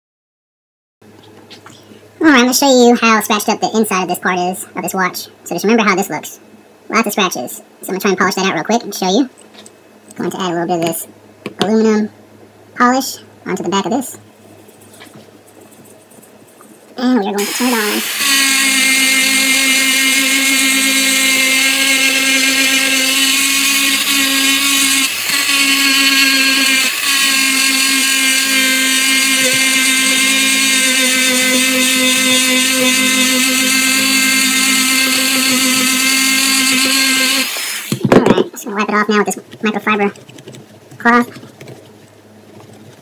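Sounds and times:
rotary tool whining: 17.4 - 38.1.

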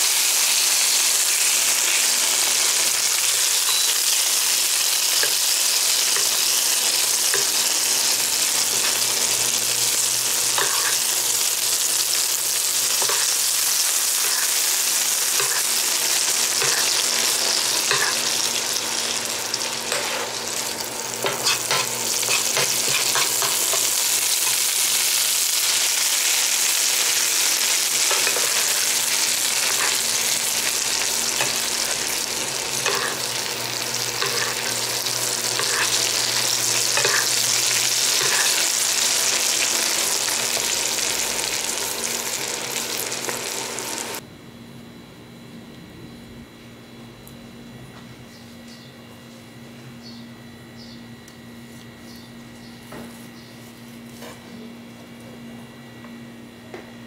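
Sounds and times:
meat sizzling in hot oil: 0.0 - 44.2.

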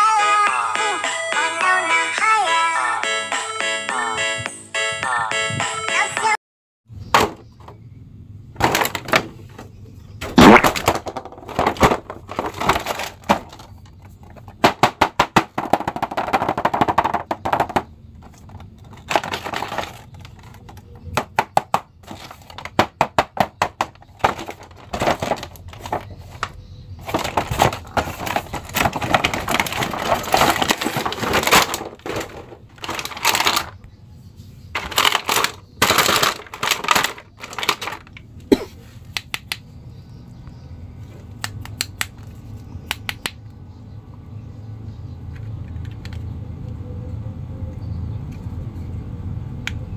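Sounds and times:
plastic packaging crackling and clicking: 10.4 - 14.8, 15.6 - 33.9, 34.7 - 38.3
knocks on plastic tray: 14.6 - 17.9.

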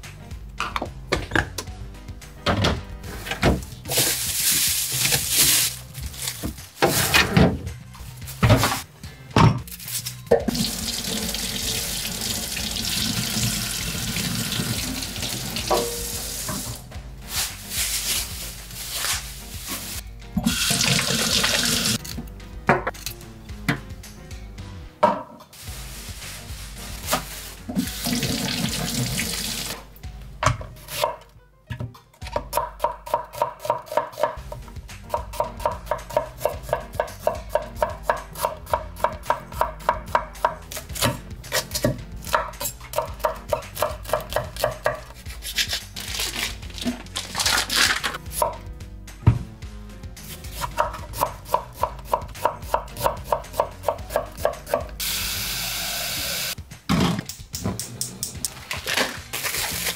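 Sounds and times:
tap running water: 10.5 - 16.8, 20.4 - 22.0, 27.9 - 29.8
knife chopping on cutting board: 32.3 - 45.7, 50.3 - 55.0.

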